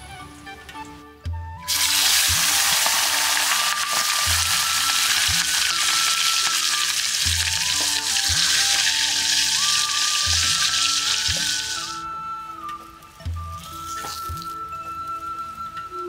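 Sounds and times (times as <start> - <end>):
chicken sizzling in hot oil: 1.7 - 12.0.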